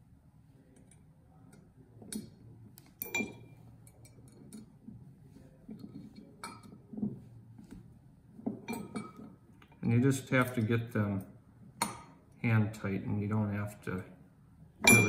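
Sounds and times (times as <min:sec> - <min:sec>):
light metallic clicks and clinks: 0:00.7 - 0:04.8, 0:08.6 - 0:12.2.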